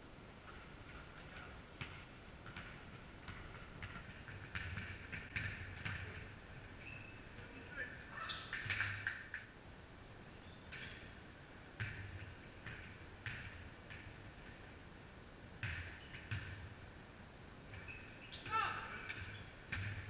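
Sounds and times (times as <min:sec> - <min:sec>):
basketball bouncing on gym floor: 0:00.5 - 0:06.4, 0:11.8 - 0:14.7, 0:15.6 - 0:16.7, 0:17.7 - 0:20.0
sneakers squeaking: 0:00.5 - 0:09.1, 0:10.4 - 0:11.2, 0:15.6 - 0:16.6, 0:17.7 - 0:20.0.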